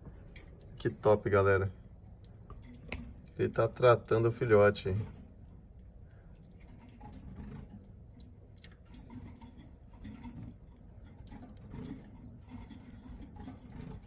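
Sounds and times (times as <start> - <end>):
nestling high squeaks: 0.0 - 1.4, 2.6 - 3.2, 6.4 - 14.0.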